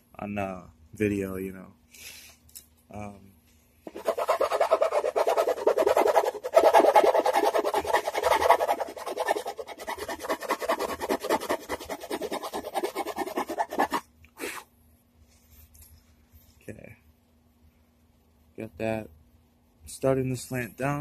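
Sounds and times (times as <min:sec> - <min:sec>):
hand tool rasping wood: 0:03.9 - 0:14.0.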